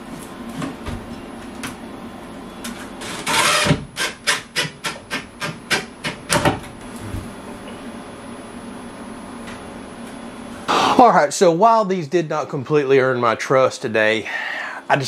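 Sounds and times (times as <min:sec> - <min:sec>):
power drill driving a screw: 0:03.1 - 0:03.8.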